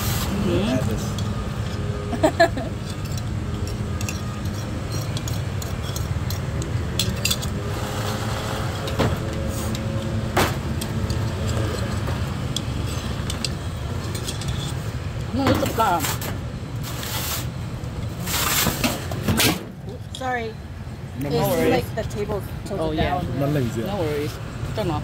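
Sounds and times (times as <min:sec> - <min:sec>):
street traffic rumble: 0:00.0 - 0:25.0.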